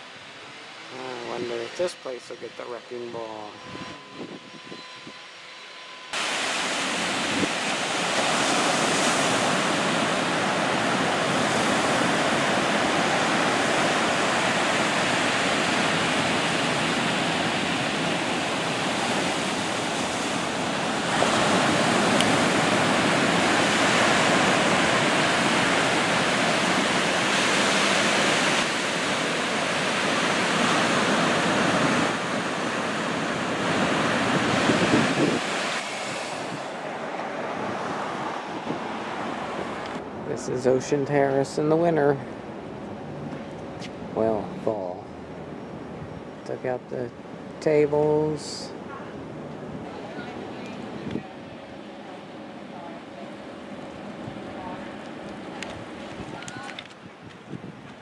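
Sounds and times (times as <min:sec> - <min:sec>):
ocean surf rushing: 0:00.0 - 0:04.8, 0:06.1 - 0:58.0
wind on microphone: 0:03.2 - 0:05.5, 0:06.2 - 0:40.4, 0:48.7 - 0:51.8, 0:54.1 - 0:58.0.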